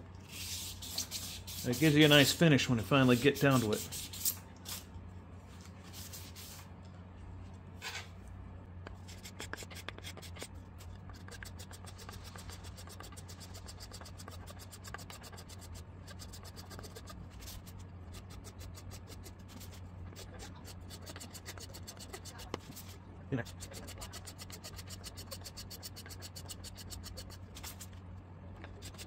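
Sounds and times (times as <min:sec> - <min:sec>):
steady low hum: 0:00.0 - 0:29.0
sandpaper rubbing strokes: 0:00.3 - 0:04.4, 0:09.0 - 0:27.9.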